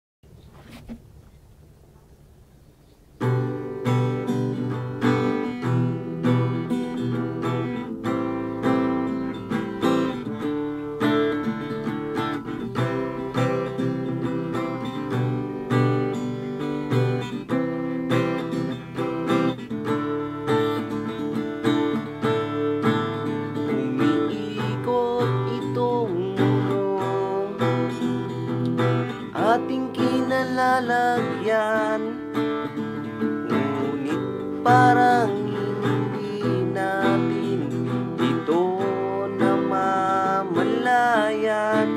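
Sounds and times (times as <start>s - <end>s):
acoustic guitar strumming: 3.0s - 41.9s.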